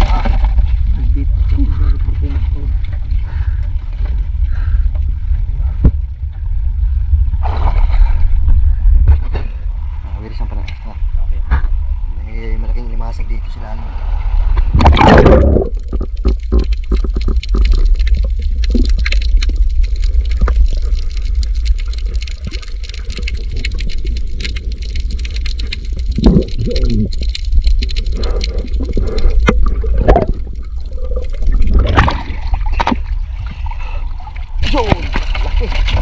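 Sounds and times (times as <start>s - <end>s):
underwater clicking and crackling: 0.0s - 8.6s, 14.6s - 36.0s
muffled gurgles: 0.0s - 36.0s
underwater rumble of moving water: 0.0s - 36.0s.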